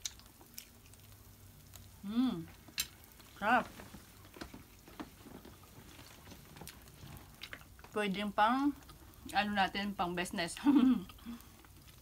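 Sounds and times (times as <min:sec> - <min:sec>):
person chewing with mouth smacks: 0:00.0 - 0:01.9, 0:11.0 - 0:12.0
person humming: 0:02.0 - 0:02.5.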